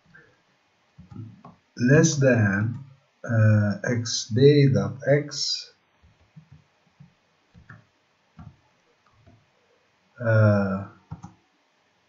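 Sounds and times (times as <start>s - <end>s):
man's voice: 1.8s - 5.7s, 10.2s - 10.9s.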